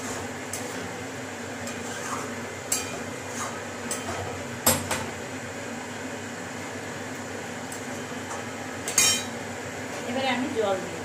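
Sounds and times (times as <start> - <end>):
spatula scraping metal pan: 1.6 - 4.3.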